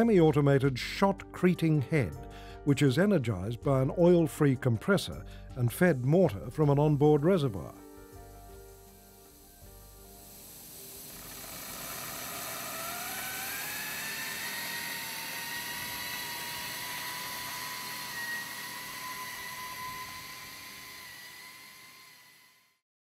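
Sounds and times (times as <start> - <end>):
rushing hiss of spraying: 7.4 - 14.4
machine whine: 7.4 - 22.8.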